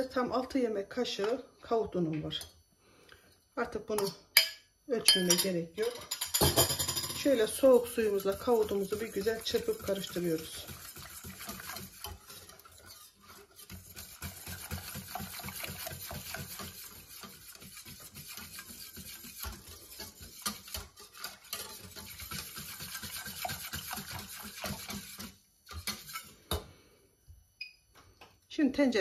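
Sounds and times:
whisk scraping a steel pot: 6.1 - 26.6.

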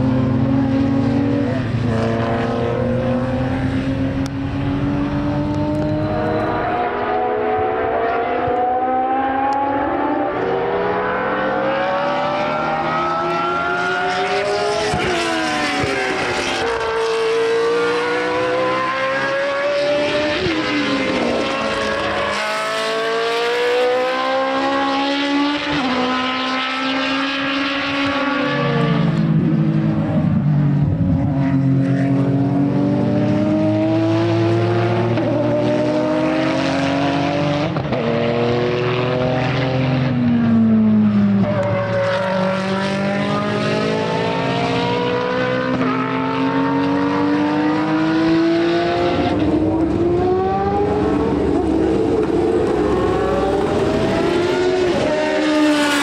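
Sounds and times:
racing car engines revving: 0.0 - 56.0.

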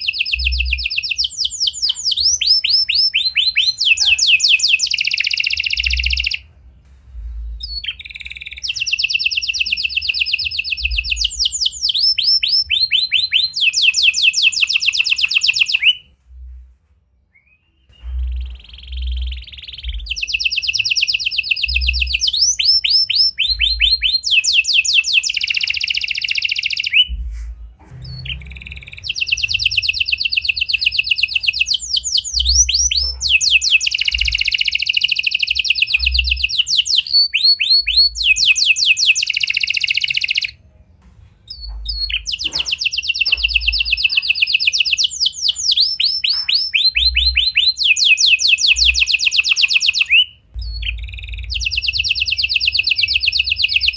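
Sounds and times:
canary trilling song: 0.0 - 16.5, 17.3 - 40.7, 41.4 - 53.9.

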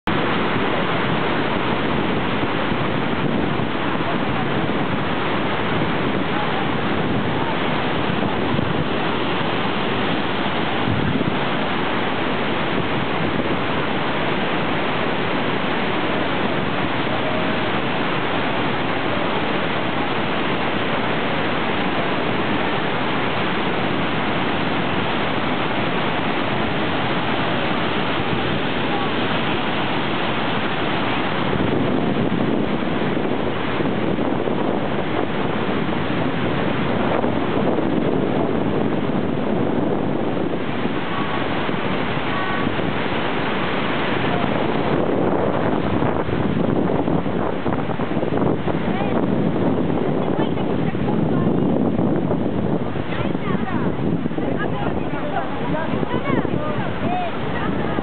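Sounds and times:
waterfall rushing: 0.0 - 58.0.

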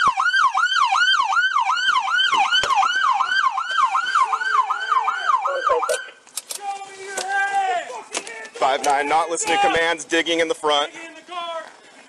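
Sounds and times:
police siren yelping: 0.0 - 6.2.

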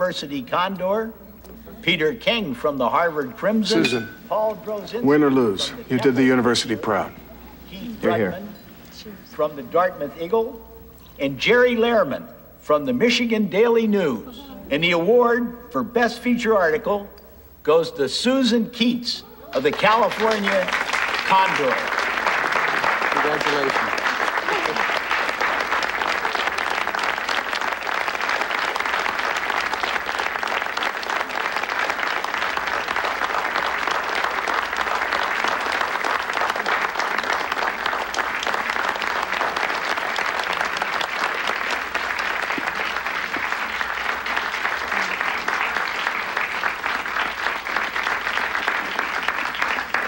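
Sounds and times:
audience applauding: 19.4 - 50.0.

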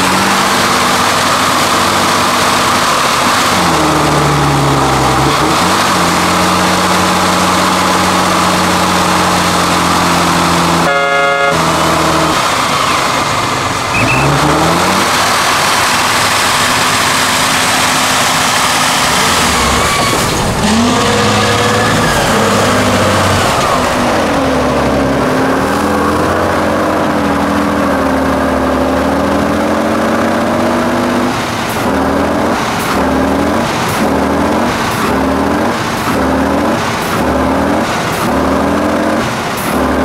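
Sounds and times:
diesel engine revving: 0.0 - 40.0.

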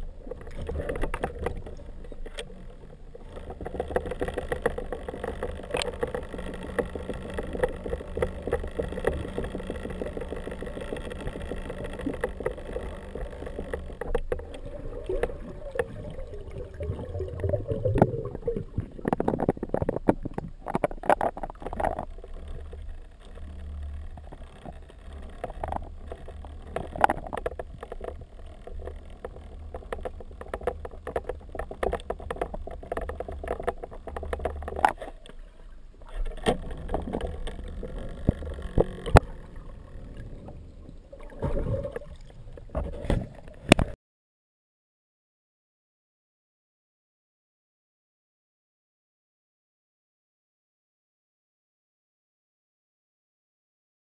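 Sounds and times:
underwater droning hum: 0.0 - 44.0.

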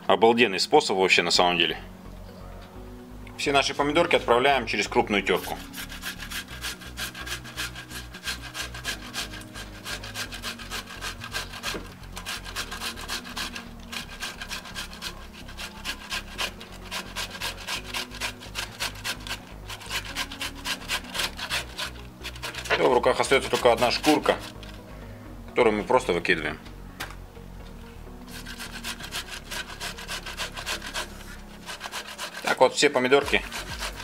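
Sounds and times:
tomatoes rasping on a metal grater: 4.8 - 24.9, 28.3 - 34.0.

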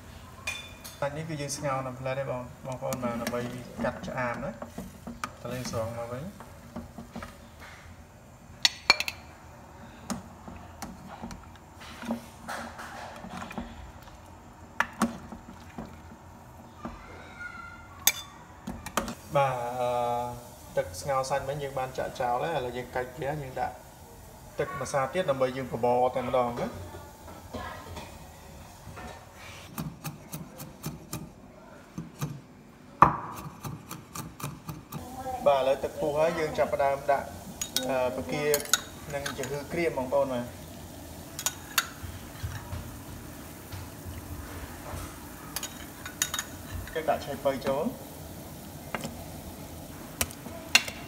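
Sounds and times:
metal ladle clinking on pot: 18.0 - 18.4, 38.5 - 39.6.

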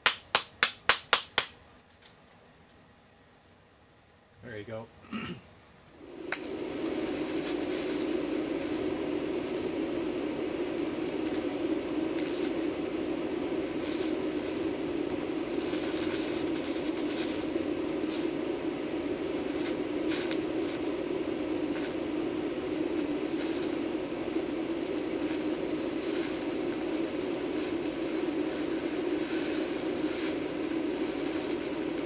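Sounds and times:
sparks crackling: 0.0 - 2.2, 6.0 - 32.0
welding arc hum and hiss: 0.0 - 32.0
man talking: 4.4 - 5.0.

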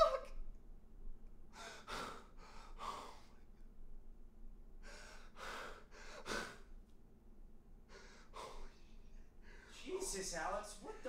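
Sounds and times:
man gasping: 7.9 - 9.8.

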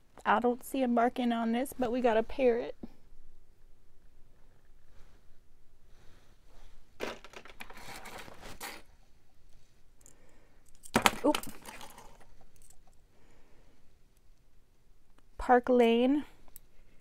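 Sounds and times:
jewelry rustling and crinkling: 6.5 - 13.1.

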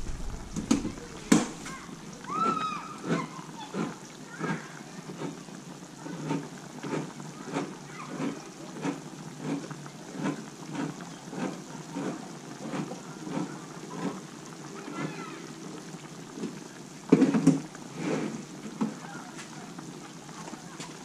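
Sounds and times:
stew boiling and popping: 0.0 - 21.0.

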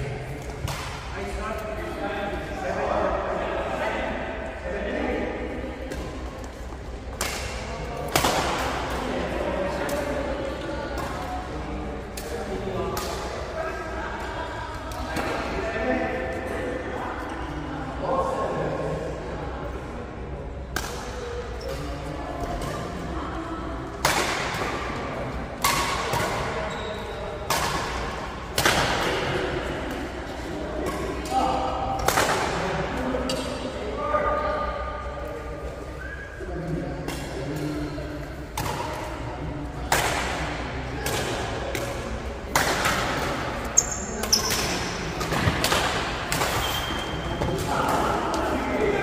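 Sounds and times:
racket hitting shuttlecock: 25.6 - 26.6, 39.8 - 48.5
shoes squeaking on court floor: 26.4 - 27.3, 43.6 - 45.0, 46.6 - 47.6.

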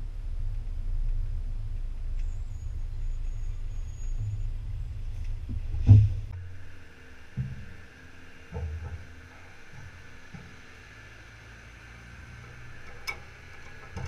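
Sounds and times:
diesel truck engine at low revs: 0.0 - 14.0
sharp thump: 5.5 - 6.3.

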